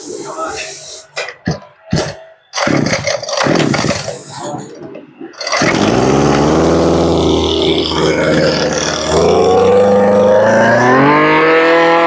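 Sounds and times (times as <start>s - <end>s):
starter cord pulls: 5.4s - 7.0s
brush-cutter engine running: 5.4s - 10.8s.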